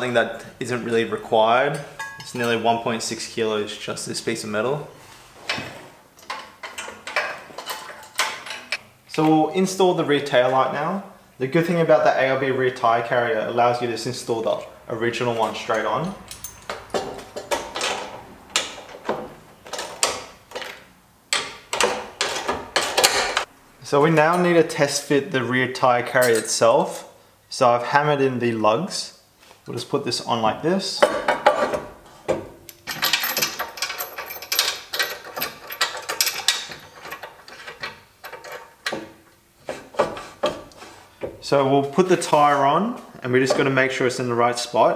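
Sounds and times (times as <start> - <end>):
metal bracket clinking and scraping: 1.6 - 2.6, 6.2 - 8.8, 15.7 - 20.7, 26.1 - 26.6, 32.7 - 40.7.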